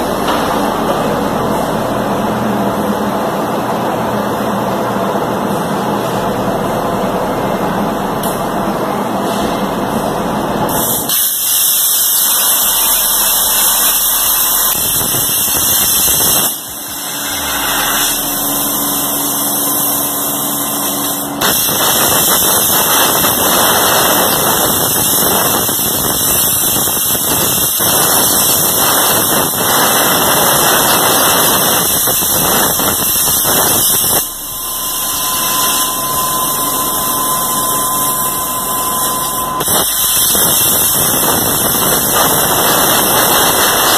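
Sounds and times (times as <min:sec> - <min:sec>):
plasma torch hissing: 0:10.7 - 0:43.9.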